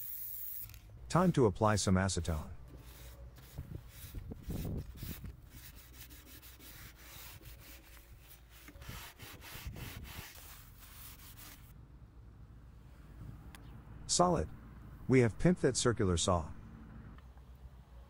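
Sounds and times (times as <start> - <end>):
paper towel rubbing on metal: 2.7 - 11.7.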